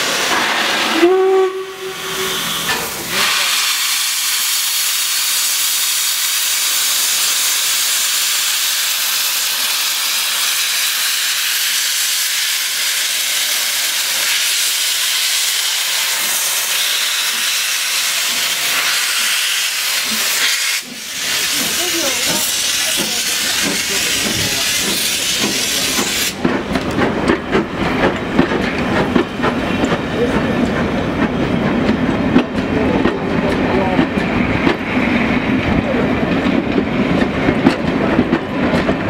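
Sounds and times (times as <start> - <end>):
steam hissing from locomotive: 0.0 - 26.5.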